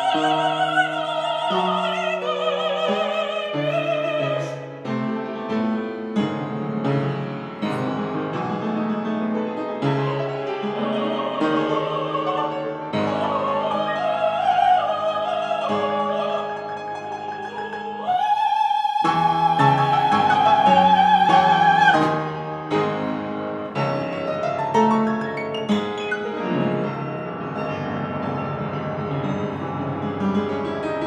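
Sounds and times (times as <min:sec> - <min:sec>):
operatic singing: 0:00.0 - 0:04.9, 0:10.1 - 0:25.3
piano chords: 0:00.0 - 0:31.0.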